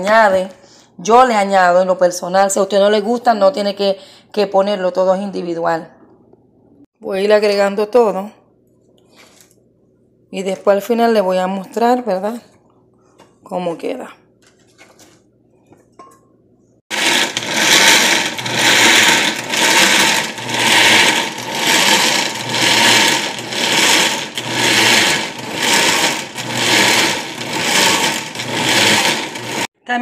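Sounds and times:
blender motor running: 16.9s - 29.7s.

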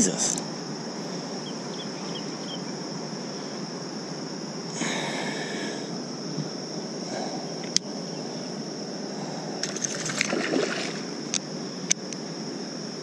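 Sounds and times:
high-pitched insect buzz: 0.0s - 13.0s
water rushing against a kayak: 9.6s - 11.2s.

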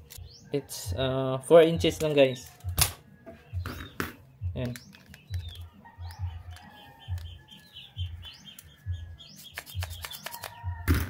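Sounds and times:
birds chirping: 0.0s - 10.9s
sharp clicks: 8.3s - 10.7s.

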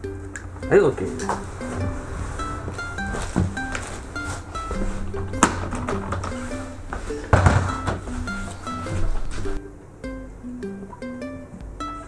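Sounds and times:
light plucked melody: 0.0s - 12.0s
low knocks: 0.3s - 9.6s.

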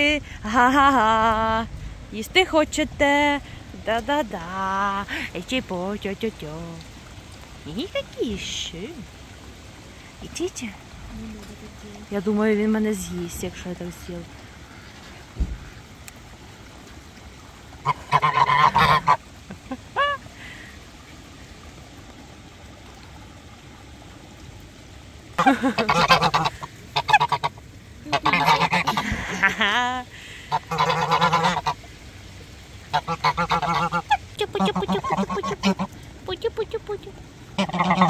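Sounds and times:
geese honking: 17.8s - 19.2s, 25.4s - 29.5s, 30.6s - 31.8s, 32.9s - 35.9s, 37.6s - 38.0s.

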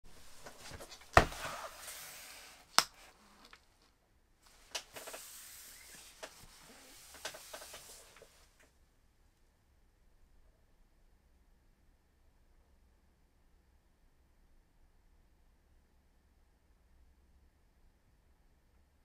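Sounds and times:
gloves scraping cardboard: 0.2s - 3.5s, 4.9s - 8.3s.

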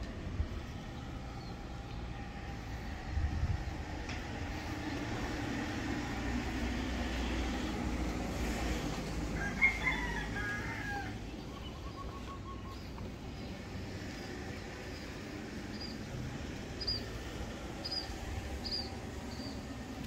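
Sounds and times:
steady low rumble: 0.0s - 9.4s
rooster crowing: 9.0s - 11.5s.

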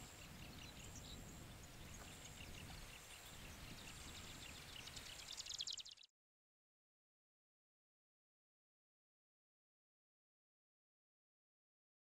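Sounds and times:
low wind rumble: 0.0s - 5.3s
bird song rapid notes: 0.0s - 6.1s.

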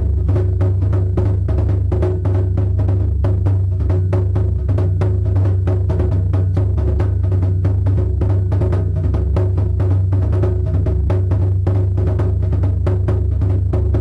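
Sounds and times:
deep bass: 0.0s - 14.0s
fast drumbeat: 0.0s - 14.0s.

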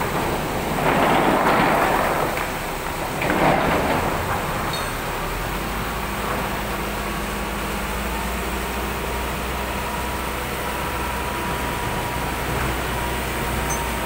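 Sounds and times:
heavy machinery engine running: 0.0s - 14.0s.

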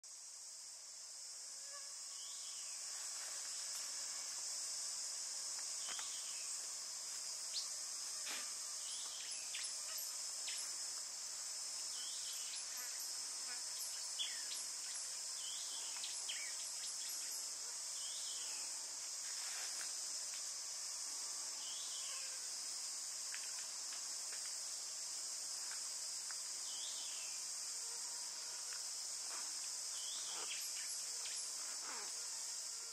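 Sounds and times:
high-pitched insect drone: 1.5s - 23.8s, 24.5s - 32.9s.

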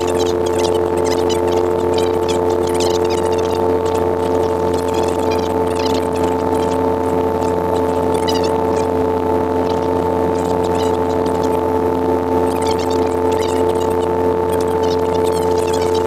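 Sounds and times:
helicopter engine and rotor drone: 0.0s - 16.0s
helicopter whine: 0.0s - 16.0s.

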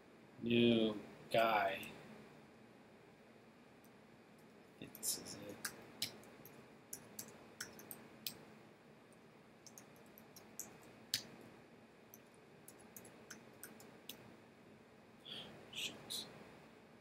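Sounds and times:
keyboard typing: 4.8s - 8.0s, 9.6s - 10.9s, 12.1s - 14.2s.

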